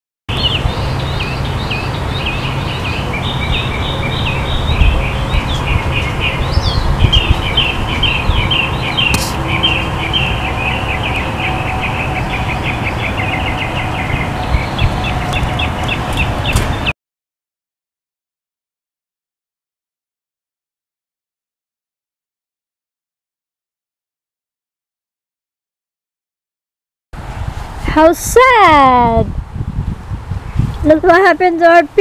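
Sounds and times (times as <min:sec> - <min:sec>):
low outdoor rumble: 0:00.3 - 0:16.9
small birds chirping: 0:00.3 - 0:16.9.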